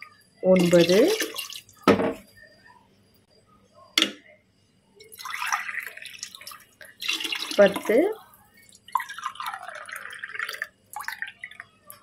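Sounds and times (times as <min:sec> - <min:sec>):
water dripping: 0:00.5 - 0:01.9, 0:05.1 - 0:12.0
water pouring into pot: 0:00.6 - 0:01.8, 0:05.1 - 0:12.0
tumbler knocking on pot: 0:01.8 - 0:02.2.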